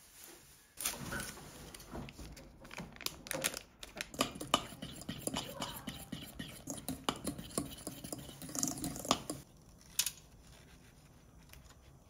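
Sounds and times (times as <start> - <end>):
utensils and dishes clicking: 4.0 - 9.4.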